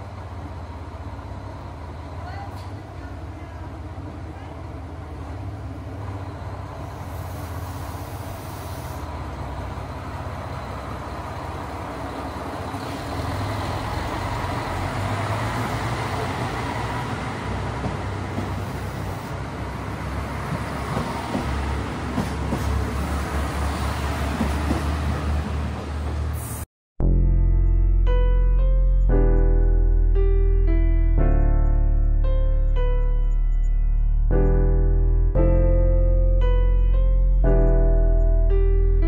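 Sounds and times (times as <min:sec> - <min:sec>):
diesel railcar engines: 0:00.0 - 0:26.7
train wheel clacks: 0:20.5 - 0:22.9.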